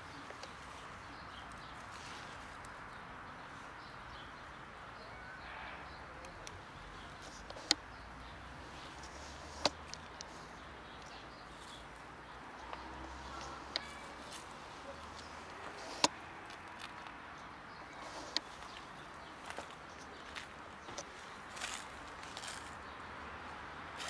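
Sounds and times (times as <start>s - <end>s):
outdoor background noise: 0.0s - 24.0s
sharp clicks: 7.3s - 7.8s.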